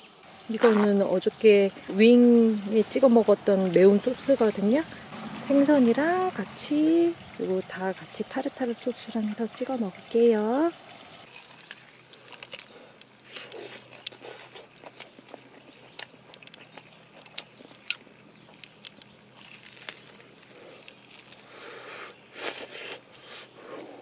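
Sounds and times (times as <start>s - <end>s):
crunching fried fish: 11.2s - 23.6s.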